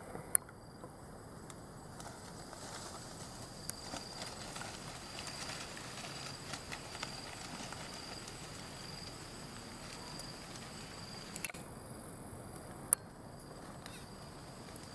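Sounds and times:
dry leaves crackling: 1.9s - 11.6s, 13.5s - 14.9s.

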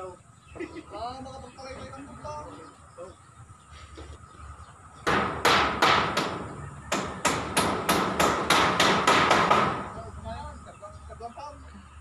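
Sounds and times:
hammer striking wood: 5.0s - 10.0s.

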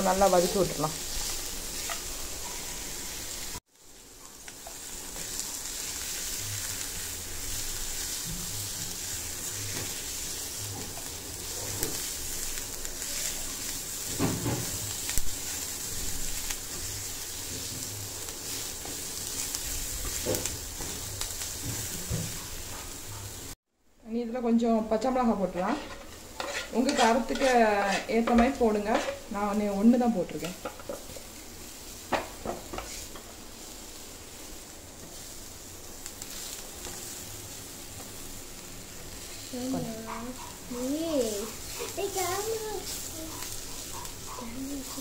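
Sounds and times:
onions sizzling in oil: 0.0s - 45.0s
spatula stirring and scraping: 0.1s - 3.0s, 4.3s - 23.0s, 25.5s - 29.6s, 30.2s - 33.7s.

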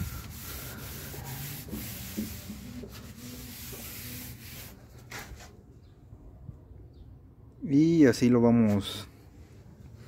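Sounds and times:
cloth rag rubbing on wood: 0.0s - 5.5s.

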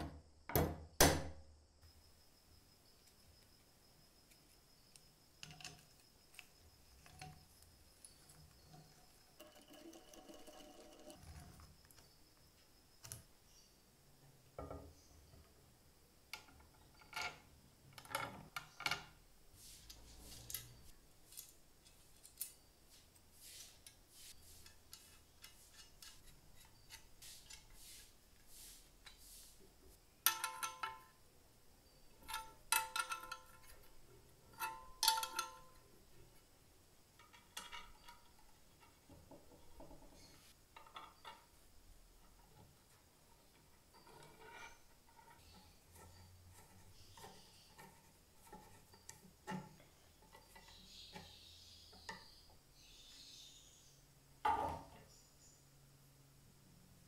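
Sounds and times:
small metal parts clinking: 30.2s - 31.2s, 32.0s - 36.0s.

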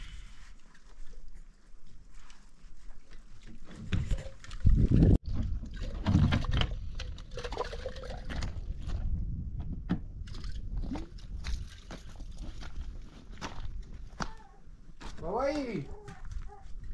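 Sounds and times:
water glugging from a jerrycan: 3.6s - 9.2s, 9.8s - 13.6s
footsteps on stony ground: 8.7s - 16.9s.

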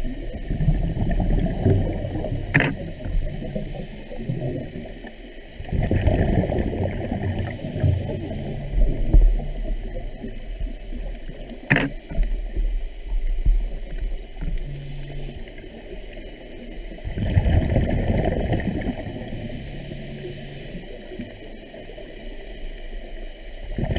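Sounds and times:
underwater rumble and gurgling: 0.0s - 23.9s
sharp clicks: 2.5s - 2.8s, 11.6s - 12.3s.

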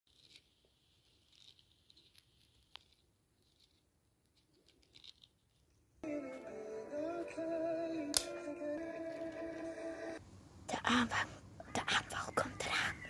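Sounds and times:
melodic music: 6.0s - 10.2s.

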